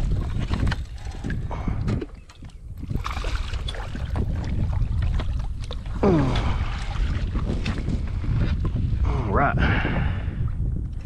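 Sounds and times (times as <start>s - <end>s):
water sounds: 0.0s - 9.6s
wind rumbling on microphone: 0.0s - 11.0s.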